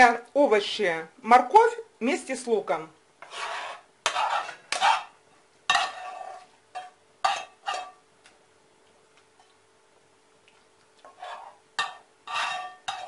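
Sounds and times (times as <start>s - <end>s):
spoon scraping frying pan: 3.2s - 8.0s, 11.0s - 13.0s.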